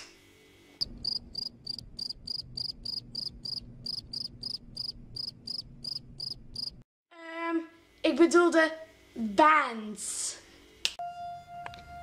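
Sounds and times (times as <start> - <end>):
crickets chirping: 0.8 - 6.8.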